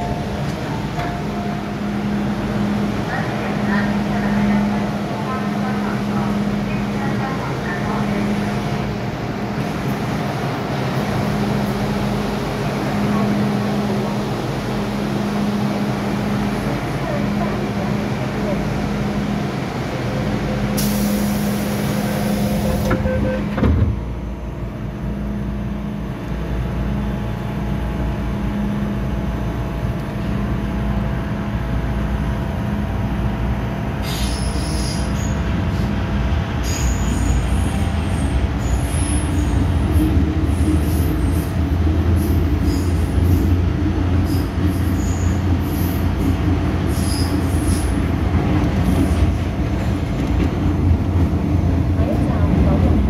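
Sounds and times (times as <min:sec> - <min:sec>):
train running noise: 0:00.0 - 0:53.0
train door hiss: 0:20.7 - 0:23.1, 0:34.0 - 0:35.1.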